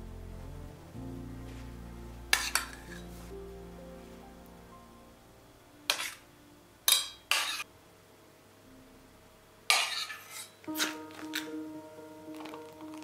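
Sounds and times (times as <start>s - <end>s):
metal spoon scraping a dish: 2.3s - 3.0s, 5.9s - 6.2s, 6.9s - 7.7s, 9.7s - 11.0s.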